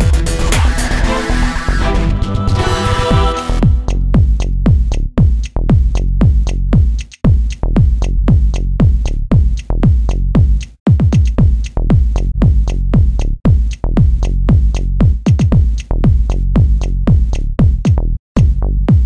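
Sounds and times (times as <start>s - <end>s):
electronic dance music: 0.0s - 4.0s.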